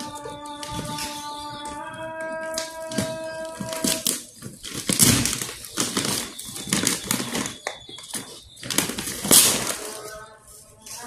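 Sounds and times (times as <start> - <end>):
plastic bag crinkling: 0.0 - 11.0
scissors cutting plastic: 2.4 - 10.3.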